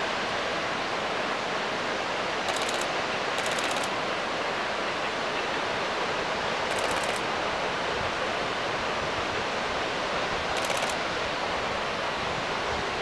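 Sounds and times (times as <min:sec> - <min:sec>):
steady rushing noise: 0:02.4 - 0:04.6, 0:05.9 - 0:13.0
rapid high-pitched ticking: 0:02.5 - 0:03.9, 0:10.6 - 0:11.0.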